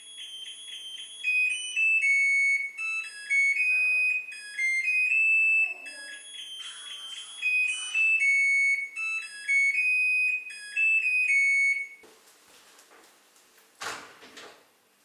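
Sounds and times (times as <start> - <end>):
electronic beeping tune: 0.0 - 12.0
soft scuffing: 12.0 - 13.4.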